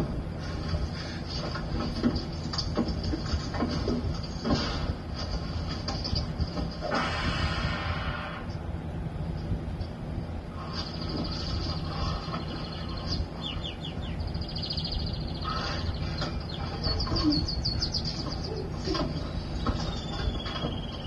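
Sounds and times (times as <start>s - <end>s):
low steady hum: 0.0s - 21.0s
bird-like chirps and whistles: 10.6s - 21.0s.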